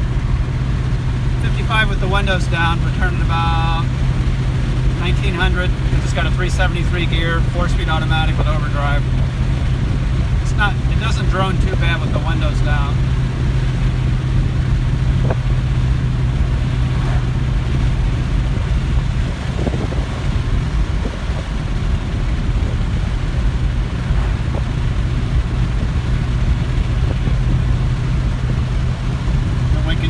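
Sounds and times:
car exhaust low drone: 0.0 - 30.0
road and wind noise: 0.0 - 30.0.

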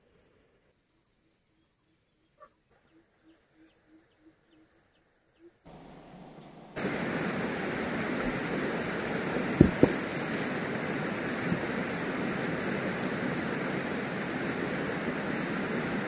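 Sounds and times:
steady rushing noise: 5.7 - 16.0.

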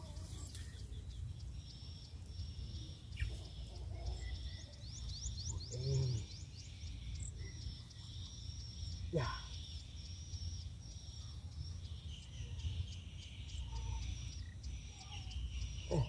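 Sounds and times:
bird chirping trill: 0.0 - 16.0
birdsong: 0.0 - 16.0
low call or grunt: 5.7 - 6.3.

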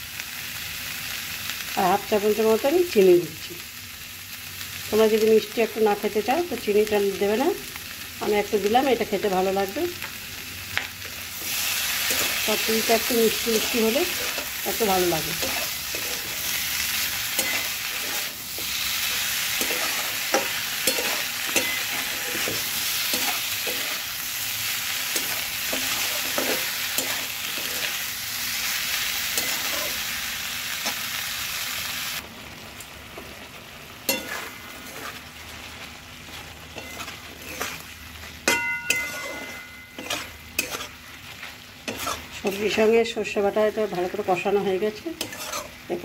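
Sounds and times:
vegetables sizzling in hot oil: 0.0 - 46.0
metal spatula scraping a pan: 11.4 - 24.4, 25.0 - 28.0, 29.2 - 30.0, 34.1 - 35.3, 36.3 - 43.0, 45.0 - 45.8.

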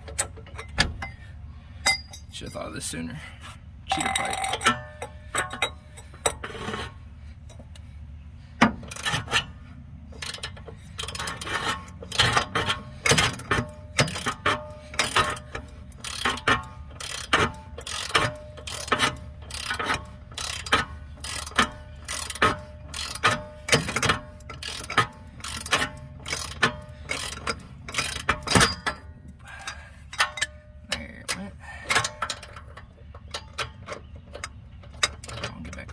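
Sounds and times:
ratchet wrench clicking: 8.8 - 9.5, 10.2 - 29.0.

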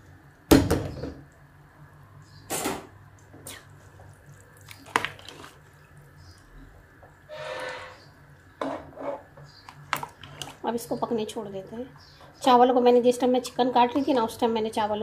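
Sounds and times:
rice sloshing in stock: 3.8 - 6.0.

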